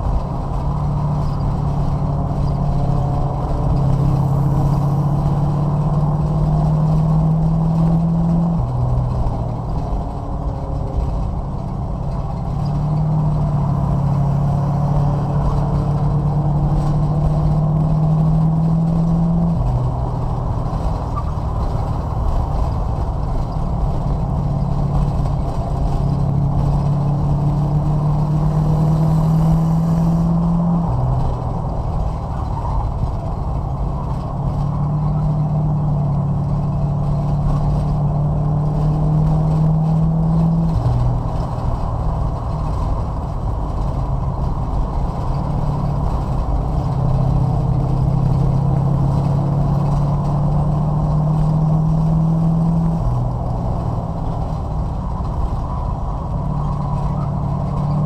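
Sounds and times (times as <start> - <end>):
racing car engine: 0.0 - 58.0
steady rumble: 0.0 - 58.0.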